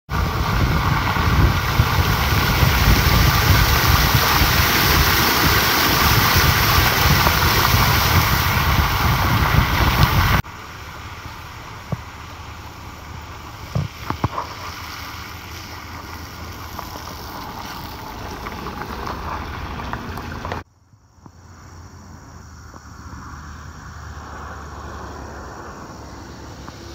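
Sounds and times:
wind rushing past microphone: 0:00.1 - 0:10.4
tyres hissing on wet road: 0:00.1 - 0:20.6, 0:21.3 - 0:26.9.

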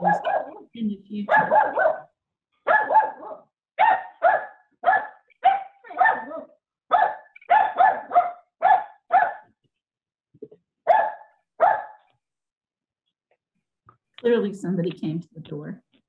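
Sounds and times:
dog barking: 0:00.0 - 0:00.7, 0:01.3 - 0:09.5, 0:10.9 - 0:12.1.

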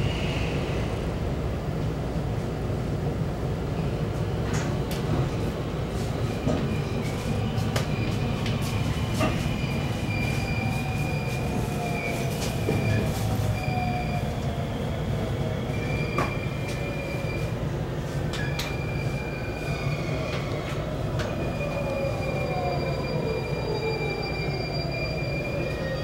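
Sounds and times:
train wheels rumbling on rail: 0:00.0 - 0:26.0
rail joint clicks: 0:04.4 - 0:05.4, 0:06.4 - 0:10.0, 0:18.2 - 0:18.8.

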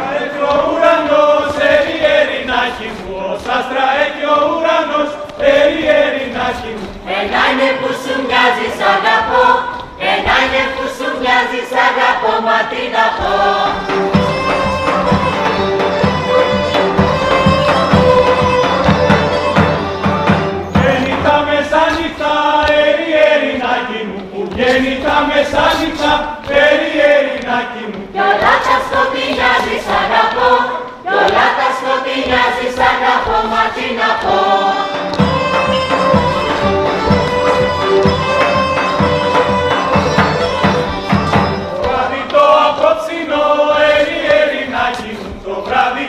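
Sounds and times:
folk band playing: 0:00.0 - 0:45.9
group singing in unison: 0:00.0 - 0:46.0
drum beat: 0:13.2 - 0:22.9, 0:28.2 - 0:46.0.

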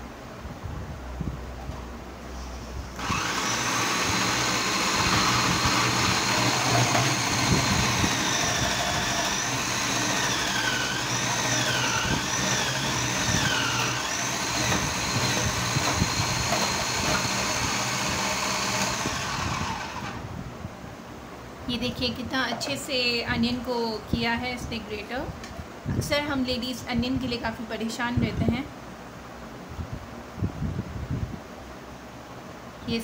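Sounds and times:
food processor motor whining: 0:03.0 - 0:20.3.

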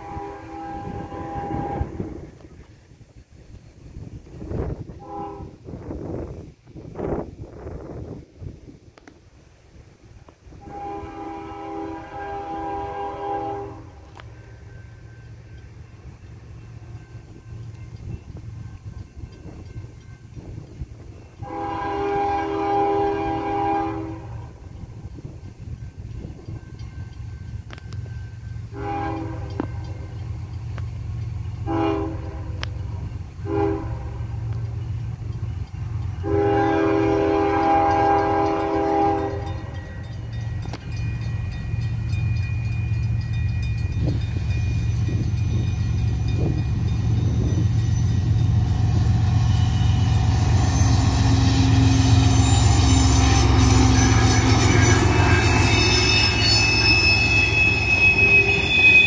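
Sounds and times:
locomotive horn blasts: 0:00.0 - 0:02.3, 0:04.9 - 0:05.8, 0:10.5 - 0:14.3, 0:21.4 - 0:24.6, 0:28.7 - 0:30.1, 0:31.6 - 0:32.8, 0:33.4 - 0:34.3, 0:36.2 - 0:40.1, 0:46.3 - 0:59.0
thin steady squeal: 0:39.8 - 0:59.0.

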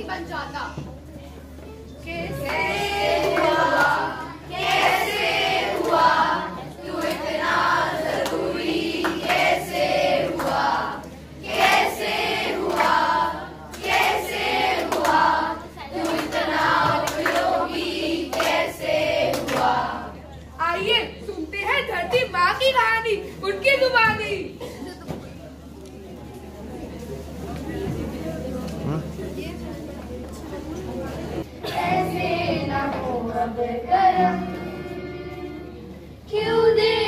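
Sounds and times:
children singing in chorus: 0:02.1 - 0:20.2, 0:31.6 - 0:37.0
hands clapping: 0:02.3 - 0:06.2, 0:07.0 - 0:07.4, 0:08.0 - 0:09.6, 0:10.2 - 0:10.8, 0:11.5 - 0:15.3, 0:15.9 - 0:19.8.

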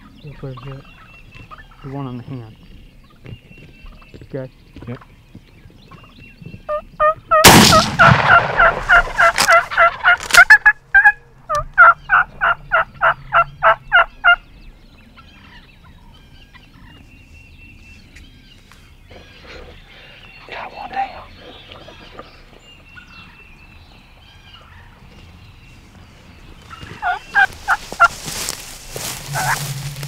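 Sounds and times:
wild turkeys calling: 0:00.0 - 0:04.2, 0:05.9 - 0:17.1, 0:18.0 - 0:30.0
shotgun blast: 0:07.4 - 0:09.5.

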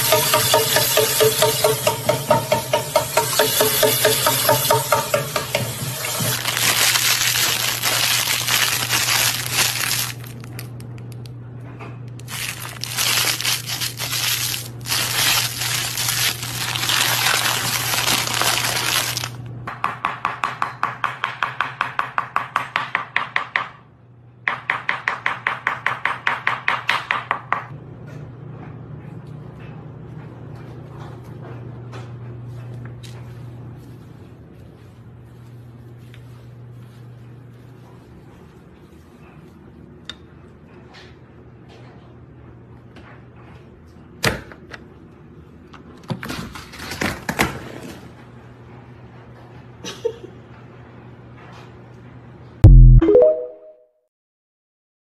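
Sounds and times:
plastic snack bag crinkling: 0:06.0 - 0:10.7, 0:12.2 - 0:19.4.

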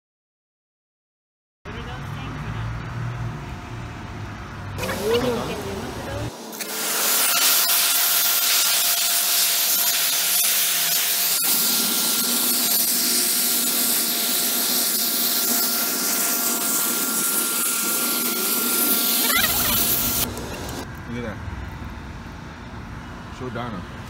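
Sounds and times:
pressure washer spraying metal: 0:04.8 - 0:20.3.

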